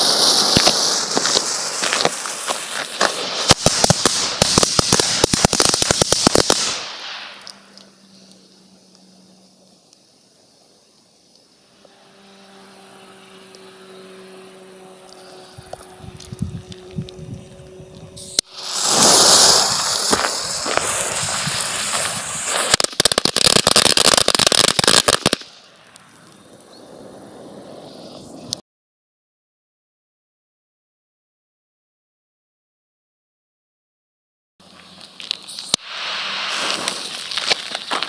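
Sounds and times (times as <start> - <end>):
firecrackers banging rapidly: 0.0 - 7.3, 18.5 - 25.4
jet torch lighter hissing: 18.2 - 22.8
footsteps crunching on gravel: 36.6 - 38.0.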